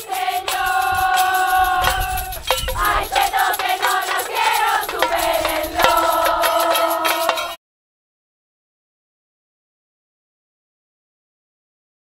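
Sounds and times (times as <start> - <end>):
group singing in unison: 0.0 - 7.6
sharp percussion taps: 0.0 - 7.6
rattles: 0.4 - 7.5.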